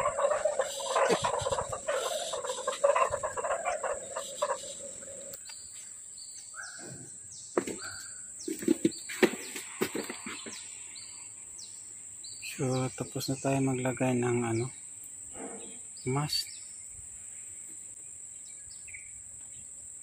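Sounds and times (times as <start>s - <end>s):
high-pitched insect whine: 0.0s - 7.1s.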